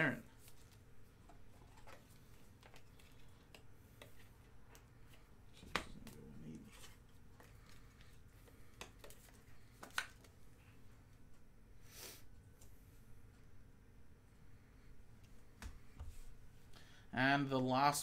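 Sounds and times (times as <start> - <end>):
trading cards rustling: 0.2 - 10.5.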